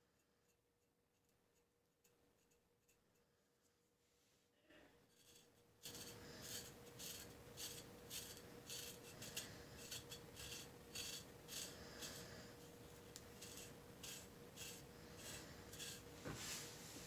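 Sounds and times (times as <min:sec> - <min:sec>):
knife scraping skin: 0:13.2 - 0:16.0.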